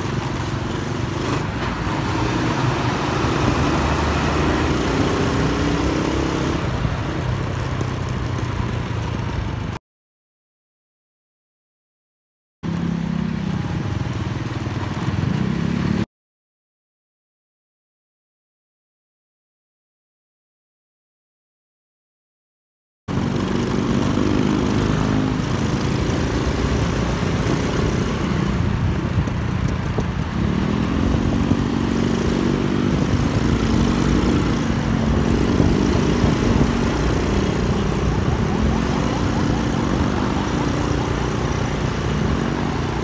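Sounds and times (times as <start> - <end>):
small motorcycle engine revving: 0.0 - 6.8, 23.1 - 28.8, 30.0 - 43.0
wind and road noise: 0.0 - 9.8, 12.6 - 16.1, 23.1 - 43.0.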